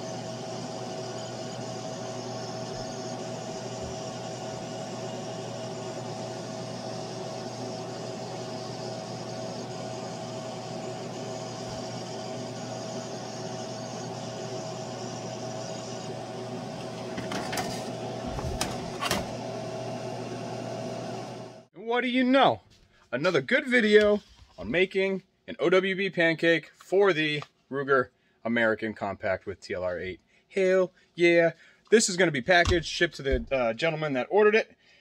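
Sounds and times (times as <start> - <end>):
laser engraver humming: 0.0 - 21.7.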